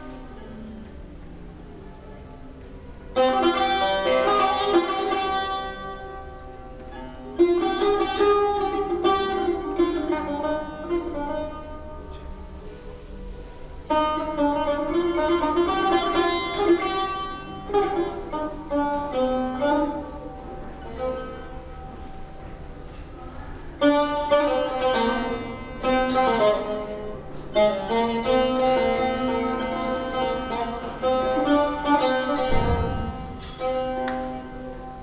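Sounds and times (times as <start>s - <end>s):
plucked lute melody: 0.0s - 35.0s
deep thump: 32.4s - 33.8s.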